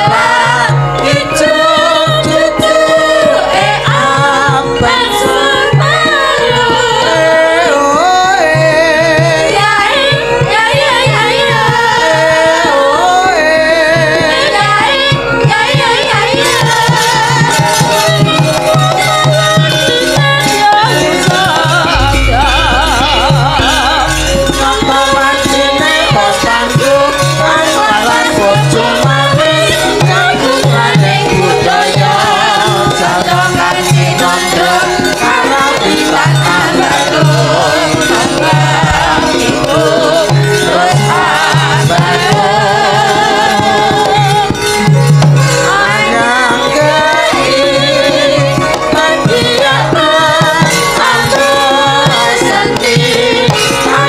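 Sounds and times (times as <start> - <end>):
women singing together: 0.0 - 54.0
gamelan: 16.5 - 54.0
hand drumming: 20.2 - 43.0
deep low tone: 21.9 - 26.6.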